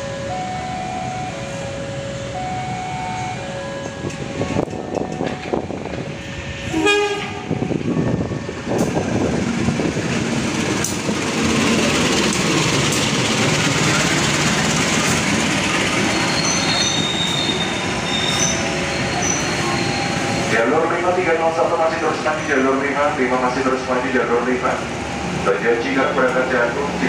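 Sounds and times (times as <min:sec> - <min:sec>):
train rolling rumble: 0:00.0 - 0:27.0
high-pitched wheel squeals: 0:16.1 - 0:20.5.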